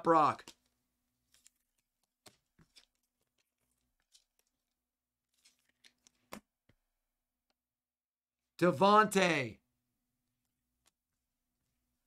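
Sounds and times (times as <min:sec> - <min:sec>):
trading cards rustling: 0:00.3 - 0:06.5.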